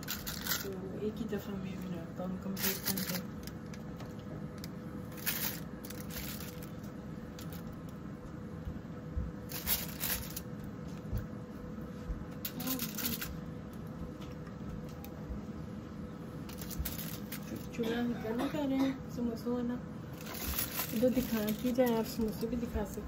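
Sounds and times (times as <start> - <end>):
aluminium foil crinkling: 0.0 - 8.0, 9.5 - 10.7, 12.4 - 13.9, 16.4 - 17.8, 20.1 - 23.0
faint steady hum: 0.0 - 23.0.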